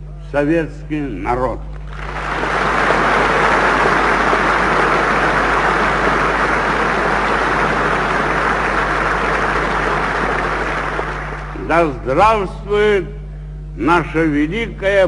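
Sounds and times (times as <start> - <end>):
low recording hum: 0.0 - 15.0
audience applauding: 1.8 - 11.7.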